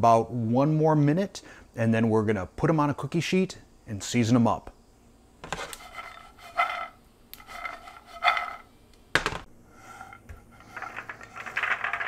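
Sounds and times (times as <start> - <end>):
nuts scraping and rattling in pan: 5.5 - 8.7, 9.8 - 12.0.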